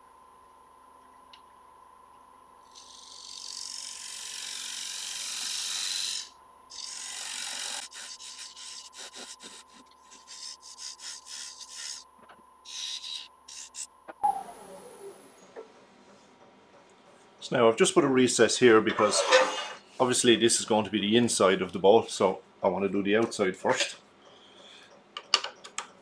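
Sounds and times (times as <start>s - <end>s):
gouge cutting wood on lathe: 2.8s - 12.0s.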